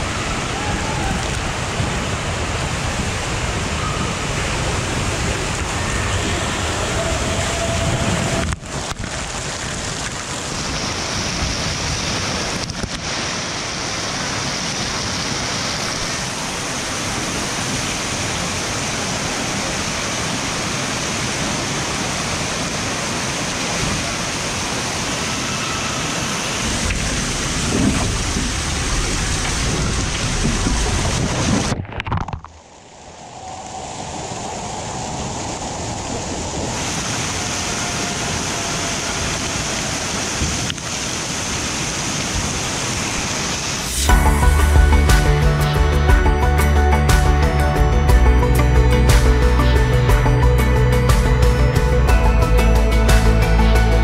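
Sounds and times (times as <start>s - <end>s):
water rushing down waterslide: 0.0s - 45.3s.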